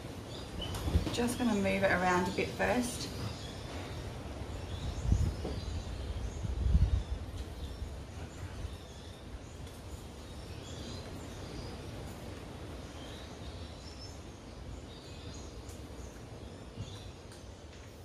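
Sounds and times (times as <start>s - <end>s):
low background noise: 0.0s - 18.0s
small birds chirping: 0.0s - 18.0s.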